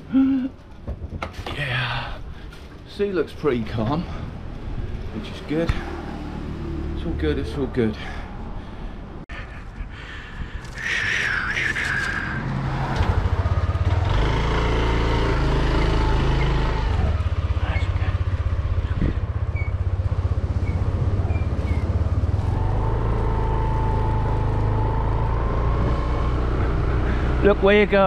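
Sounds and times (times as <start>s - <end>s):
motor scooter engine accelerating: 12.6s - 17.6s, 18.4s - 27.9s.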